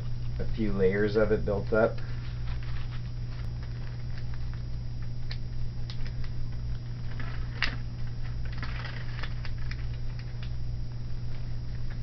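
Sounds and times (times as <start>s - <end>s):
casting tape crackling: 0.0s - 12.0s
steady low hum: 0.0s - 12.0s.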